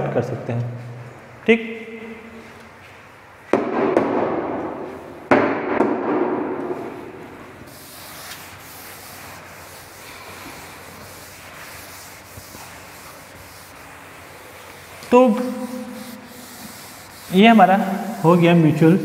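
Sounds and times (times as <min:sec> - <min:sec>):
duster wiping blackboard: 0:07.6 - 0:19.0.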